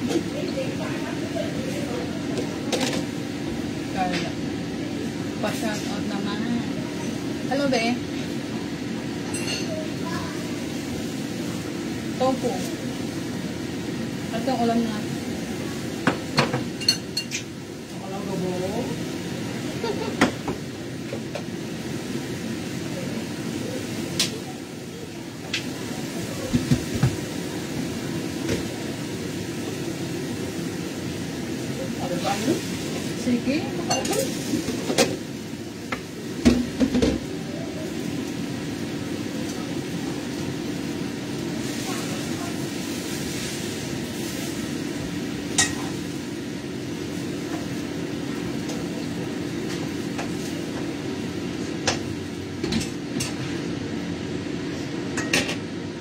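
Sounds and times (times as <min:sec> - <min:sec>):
kitchen exhaust fan humming: 0:00.0 - 0:56.0
cookware clanking: 0:45.6 - 0:45.9.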